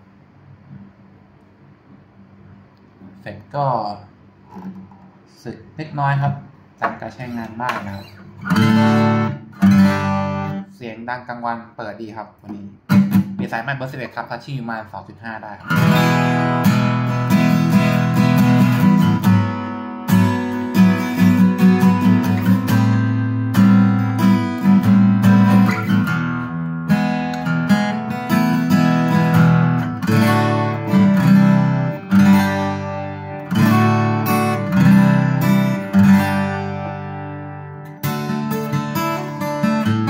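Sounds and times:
acoustic guitar fingerpicked: 4.4s - 5.1s, 6.8s - 10.7s, 12.5s - 14.2s, 15.6s - 40.0s.

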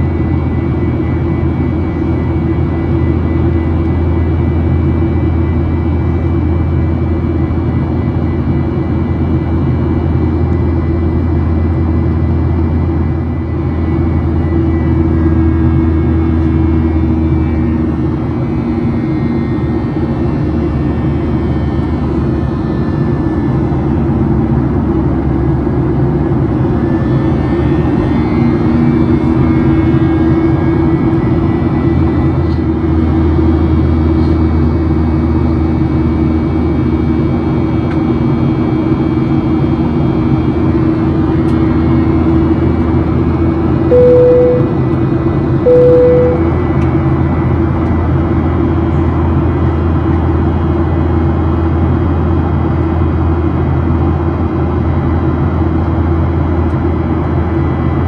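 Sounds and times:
jet engine roar in cabin: 0.0s - 58.0s
short electronic tones: 43.9s - 45.0s, 45.7s - 46.6s.

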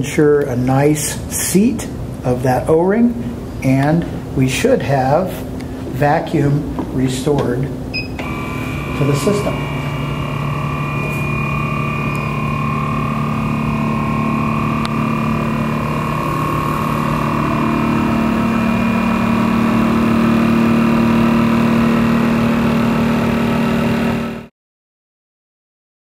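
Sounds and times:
vacuum mixer motor hum: 8.0s - 24.5s.

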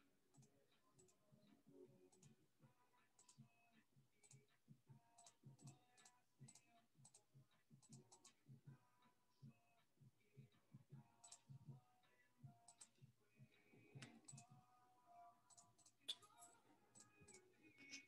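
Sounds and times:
faint irregular clicks: 3.0s - 14.5s, 15.4s - 18.0s.

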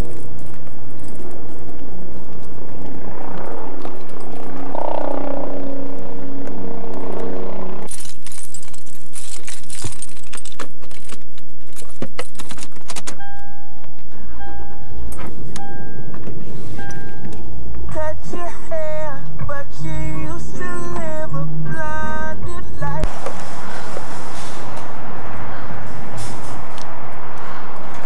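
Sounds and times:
keys jangling: 0.0s - 2.8s, 3.8s - 4.8s, 7.9s - 13.4s
car warning chime beeping: 13.2s - 17.5s.

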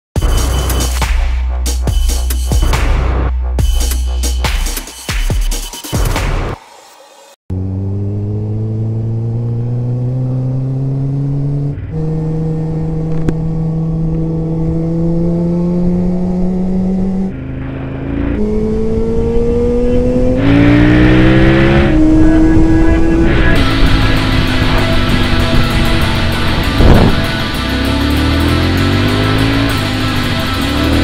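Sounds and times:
motorcycle engine revving: 7.5s - 31.0s
wind rushing: 20.4s - 27.6s.

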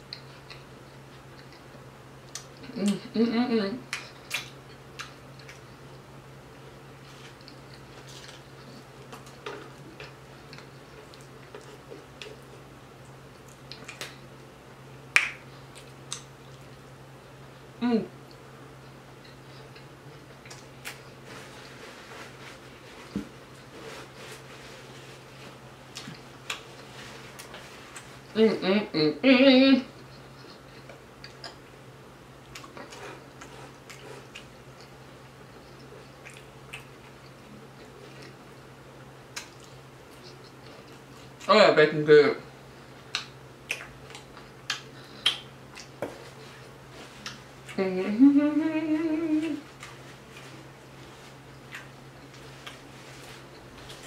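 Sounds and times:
fingertips picking food crackles: 0.0s - 3.2s, 3.8s - 28.6s, 29.9s - 41.6s, 42.6s - 54.0s
faint low hum: 0.0s - 54.0s
wet chewing clicks and smacks: 3.9s - 5.7s, 7.4s - 14.2s, 35.6s - 38.4s, 39.3s - 41.5s, 43.1s - 46.1s, 51.6s - 52.9s
wet mouth smack: 15.2s - 15.4s, 43.1s - 46.2s.

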